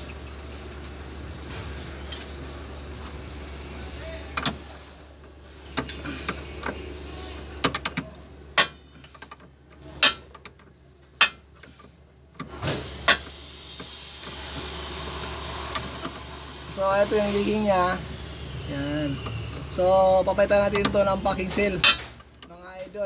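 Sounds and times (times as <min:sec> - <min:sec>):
wrench clinking on metal: 0:10.0 - 0:10.6.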